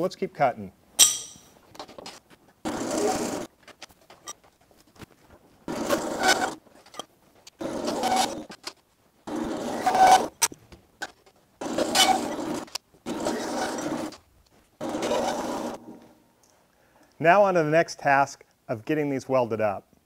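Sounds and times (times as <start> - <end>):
hand file scraping steel: 5.7 - 6.6, 7.6 - 8.5, 11.7 - 14.1.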